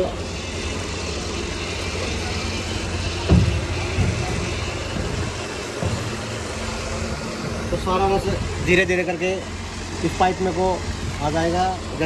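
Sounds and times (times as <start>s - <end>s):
crusher engine drone: 0.0s - 12.0s
dull thump: 3.0s - 7.1s.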